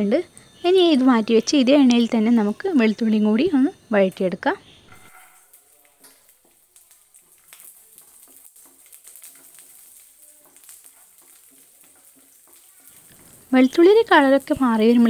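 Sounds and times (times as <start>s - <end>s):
garlic sizzling in oil: 0.0s - 15.0s
small crackles: 4.2s - 15.0s.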